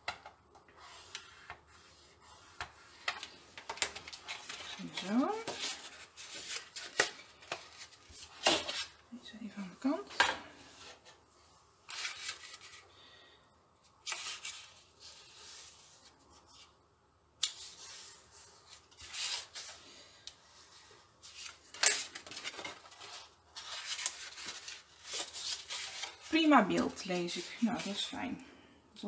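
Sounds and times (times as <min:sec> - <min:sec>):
paper rustling and rubbing: 0:00.7 - 0:09.0, 0:11.9 - 0:12.9, 0:14.0 - 0:16.8, 0:17.5 - 0:28.2.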